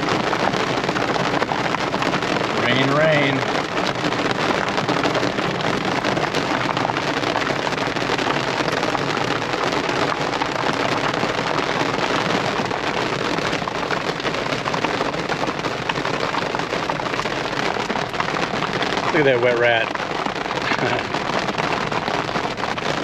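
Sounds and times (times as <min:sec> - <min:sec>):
heavy rain on car roof: 0:00.0 - 0:23.0.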